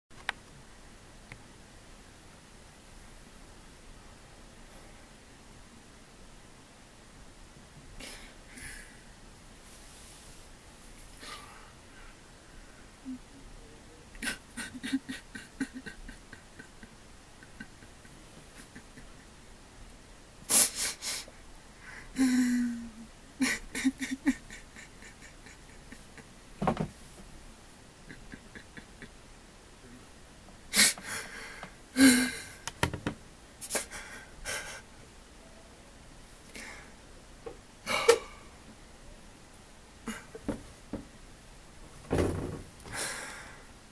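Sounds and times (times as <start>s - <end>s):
man sobbing: 14.1s - 19.3s, 22.1s - 26.3s, 28.0s - 29.2s, 32.0s - 32.6s.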